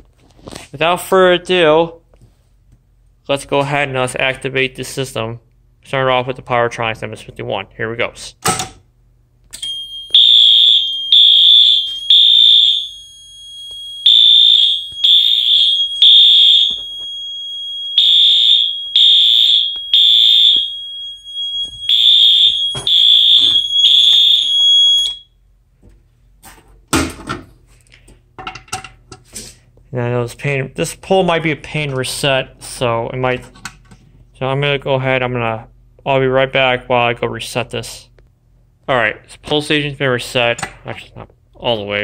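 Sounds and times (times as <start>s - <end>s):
fire alarm horn blasts: 9.6s - 25.4s
thin steady alarm tone: 9.6s - 25.4s.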